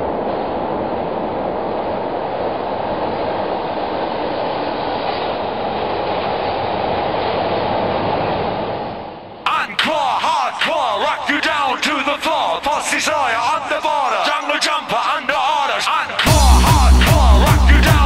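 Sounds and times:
subway train wheels on rail: 0.0 - 9.4.

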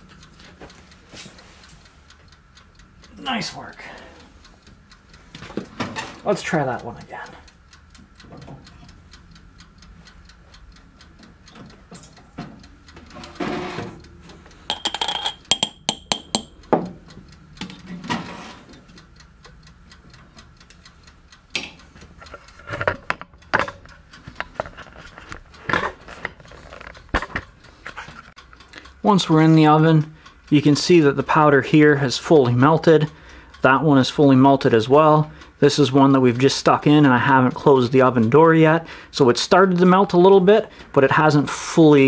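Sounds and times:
mechanical timer ticking: 0.0 - 42.0
metal clinking in glass jar: 14.7 - 16.4
glassy ring: 14.7 - 16.6.

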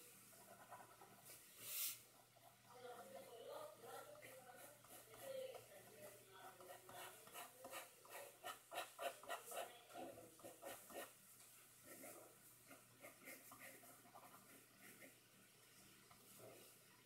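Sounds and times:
ink pen scratching on paper: 0.4 - 1.3, 2.5 - 11.2, 11.8 - 15.2.

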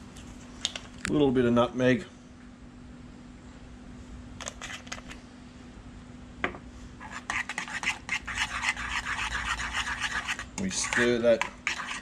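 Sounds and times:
spoon scraping in pan: 7.0 - 12.0.

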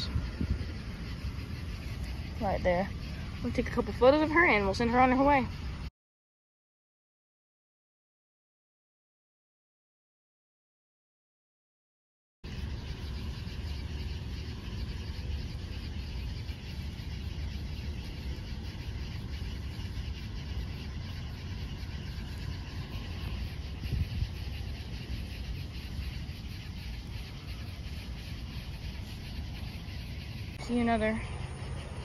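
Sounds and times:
low rumble: 0.0 - 5.9
night insects trilling: 0.0 - 5.9, 12.4 - 32.0.

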